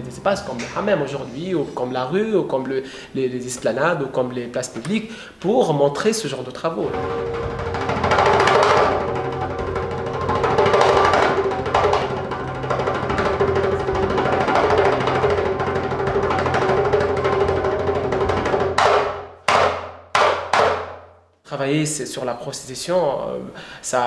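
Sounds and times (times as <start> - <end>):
goblet drum played by hand: 6.8 - 21.0
steady drone: 6.9 - 18.8.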